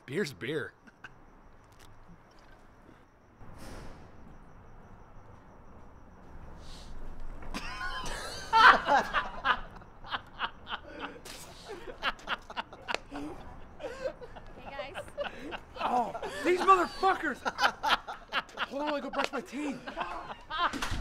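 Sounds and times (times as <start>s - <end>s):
young men laughing: 0.8s - 1.3s, 7.5s - 21.0s.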